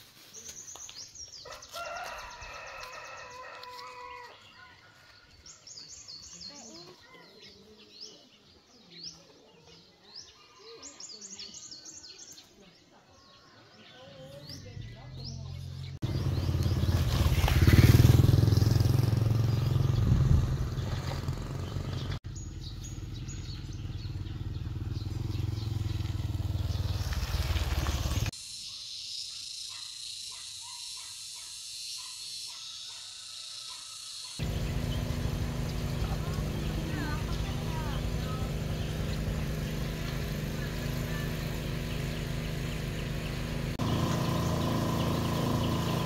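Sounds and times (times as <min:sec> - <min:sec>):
small motorbike engine running: 0:14.5 - 0:28.3, 0:34.4 - 0:46.0.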